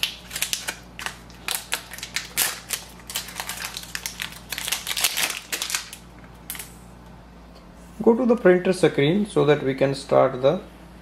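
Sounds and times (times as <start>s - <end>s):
plastic packaging crinkling: 0.0s - 6.7s.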